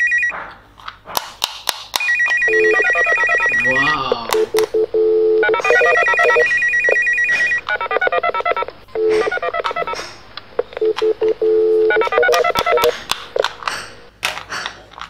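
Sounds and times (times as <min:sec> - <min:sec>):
toy walkie-talkie beeps: 0:02.0 - 0:10.0, 0:10.6 - 0:13.5.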